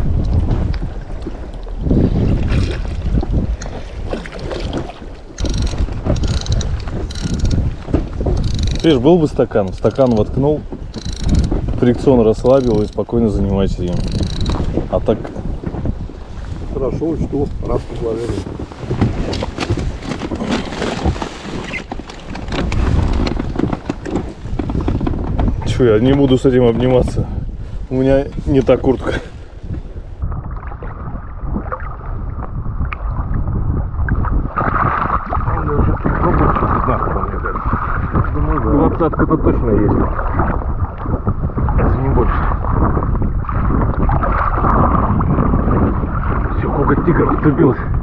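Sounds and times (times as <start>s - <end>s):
water lapping at boat: 0.0s - 48.0s
wind buffeting microphone: 0.0s - 48.0s
fishing reel ratcheting click: 5.4s - 7.6s, 8.4s - 8.9s, 10.9s - 11.5s, 12.5s - 13.0s, 14.0s - 14.6s
short clicks and knocks: 5.4s - 7.6s.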